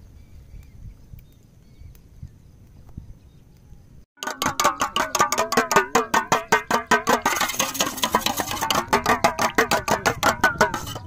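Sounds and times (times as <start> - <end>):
metal spoon beating eggs in bowl: 4.2 - 11.0.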